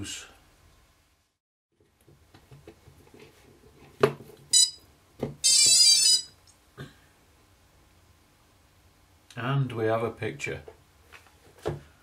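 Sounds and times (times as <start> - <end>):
short high beep: 4.6 - 4.8, 5.4 - 6.4
warbling electronic startup tone: 5.4 - 6.3.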